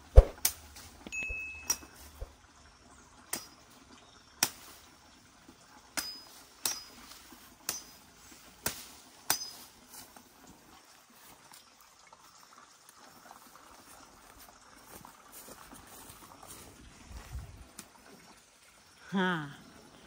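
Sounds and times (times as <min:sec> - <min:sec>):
machete chopping wood: 0:00.2 - 0:00.6, 0:06.0 - 0:07.0, 0:08.6 - 0:09.6
metallic ring of blade: 0:01.2 - 0:02.0, 0:06.0 - 0:07.0, 0:09.3 - 0:09.6.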